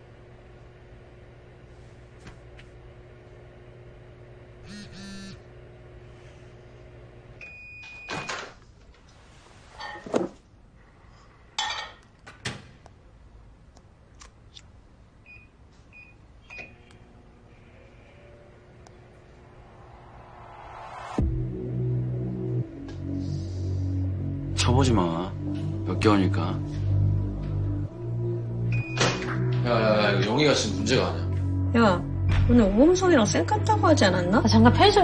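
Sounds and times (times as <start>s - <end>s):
microwave oven humming: 0.0s - 8.6s, 15.2s - 19.6s
microwave beeps: 7.4s - 8.4s, 15.2s - 16.9s, 28.7s - 29.2s.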